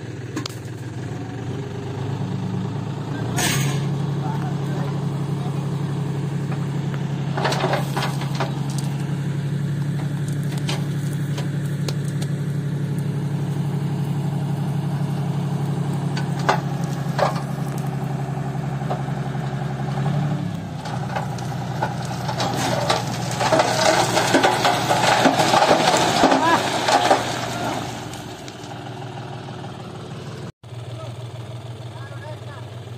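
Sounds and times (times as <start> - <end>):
tractor diesel engine running: 0.0 - 32.9
soil and gravel sliding out: 3.2 - 29.0.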